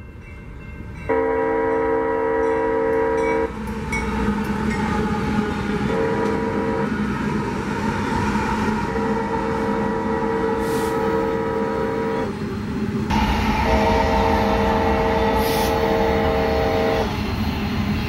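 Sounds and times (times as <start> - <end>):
passing train rumble: 0.0 - 18.0
locomotive horn: 1.1 - 3.5, 5.9 - 7.0, 8.8 - 12.3, 13.5 - 17.1.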